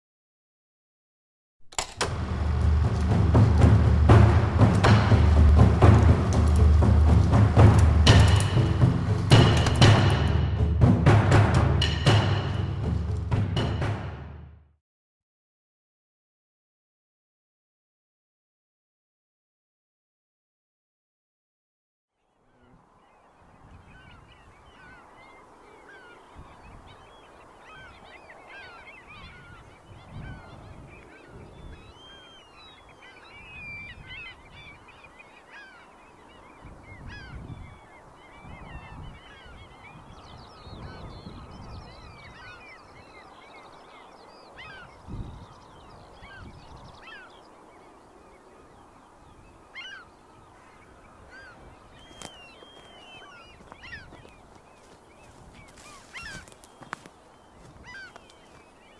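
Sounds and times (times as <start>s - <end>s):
low rumbles: 1.8s - 14.5s
geese honking: 2.2s - 13.9s, 54.8s - 58.7s.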